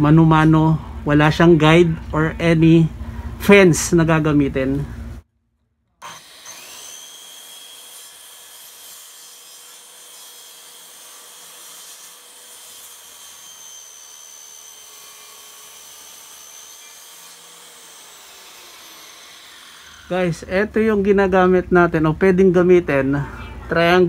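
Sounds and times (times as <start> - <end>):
saw blade cutting wood: 6.0 - 20.2
circular saw motor whine: 13.3 - 20.4.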